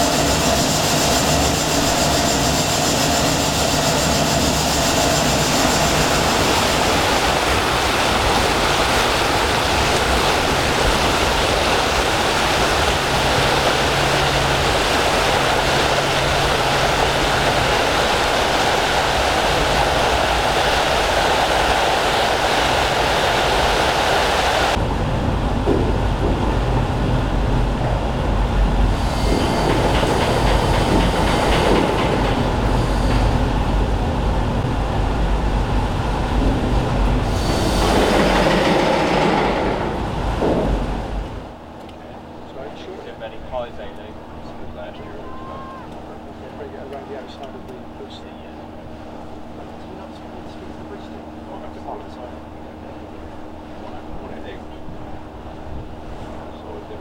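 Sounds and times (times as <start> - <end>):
ship's wake rushing and splashing: 0.0 - 42.4
deep low machinery rumble: 0.0 - 57.0
furnace fire roaring: 11.8 - 42.0.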